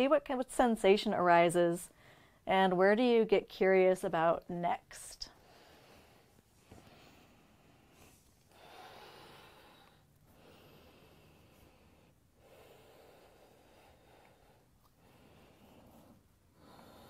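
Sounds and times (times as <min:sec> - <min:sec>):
slow breathing: 0:05.3 - 0:17.0.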